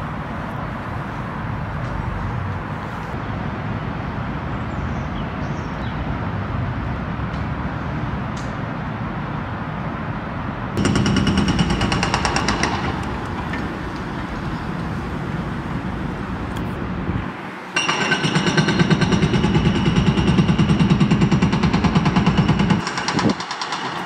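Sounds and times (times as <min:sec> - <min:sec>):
hydraulic breaker hammering concrete: 0:10.8 - 0:13.8, 0:17.8 - 0:24.0
excavator engine running: 0:10.8 - 0:24.0.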